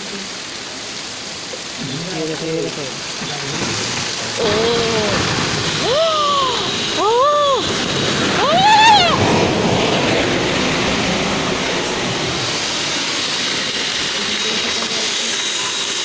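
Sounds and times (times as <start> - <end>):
running rainwater: 0.0 - 16.0
soil and debris sliding: 1.8 - 16.0
person's short cry: 4.4 - 7.6.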